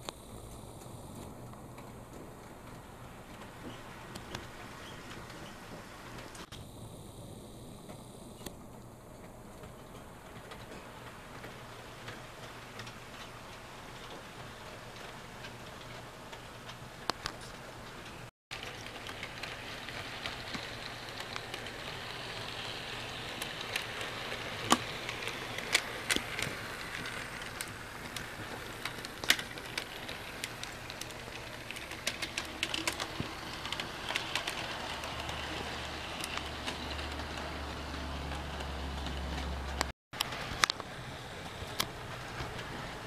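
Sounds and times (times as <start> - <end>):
wheels clicking on rails: 0.0 - 6.5, 8.8 - 43.0
model train electric whir: 18.6 - 43.0.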